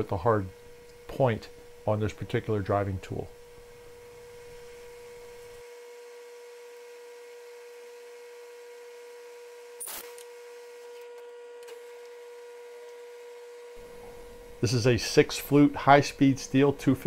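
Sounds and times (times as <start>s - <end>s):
faint steady hum: 0.0s - 5.7s, 10.2s - 17.0s.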